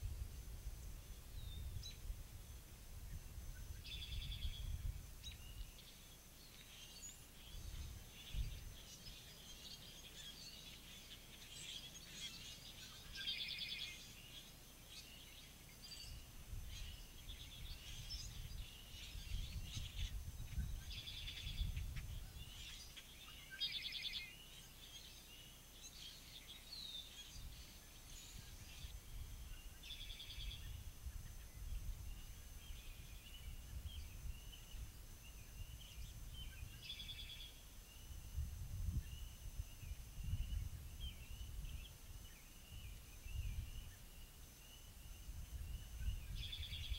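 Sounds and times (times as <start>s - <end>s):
wind rumble on microphone: 0.0s - 5.9s, 7.4s - 10.6s, 15.8s - 23.0s, 27.3s - 46.9s
songbirds singing: 0.0s - 46.9s
buzzy trilled bird song: 0.8s - 46.9s.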